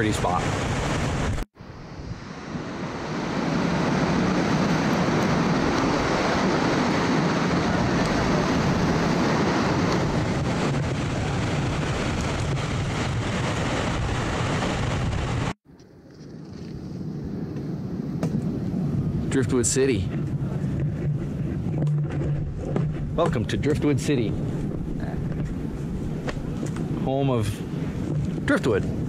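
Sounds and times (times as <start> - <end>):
ocean surf rushing through rocks: 0.0 - 15.6
wind on microphone: 0.0 - 29.0.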